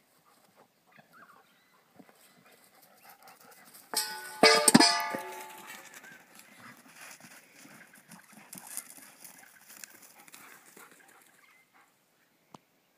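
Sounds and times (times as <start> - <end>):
puppies scuffling on grass: 5.8 - 11.4.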